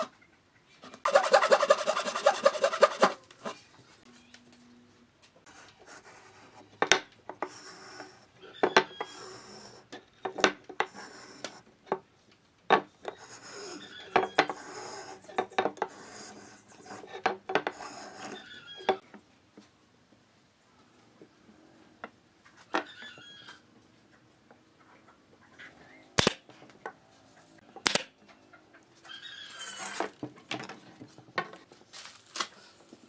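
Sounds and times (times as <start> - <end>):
gauge scraping along wood: 1.0 - 3.6, 10.8 - 11.6, 13.1 - 19.0, 29.4 - 30.2.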